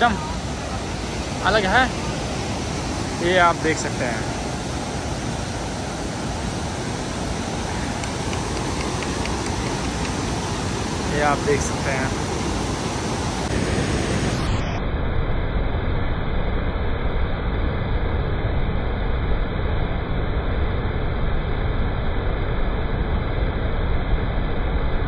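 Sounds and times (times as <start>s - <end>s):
waterfall rushing: 0.0s - 14.6s.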